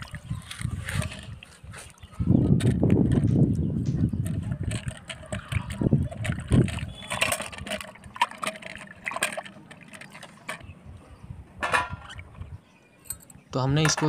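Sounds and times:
water splashing in steel bucket: 0:04.2 - 0:10.6.

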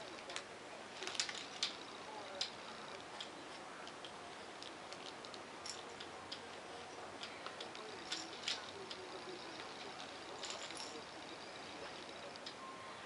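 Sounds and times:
plastic toys clicking and clacking: 0:00.0 - 0:06.6, 0:07.2 - 0:12.6.

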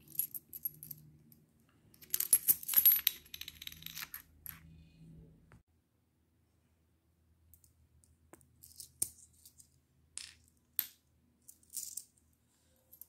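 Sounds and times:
coins clinking on wooden floor: 0:02.0 - 0:04.6, 0:11.5 - 0:12.1.

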